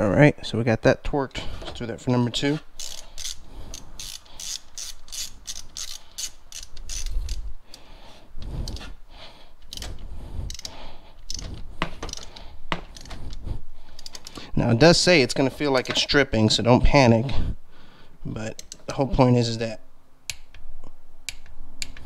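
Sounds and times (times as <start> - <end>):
socket ratchet clicking: 2.7 - 7.8, 9.6 - 13.4, 14.0 - 14.4, 18.6 - 18.9.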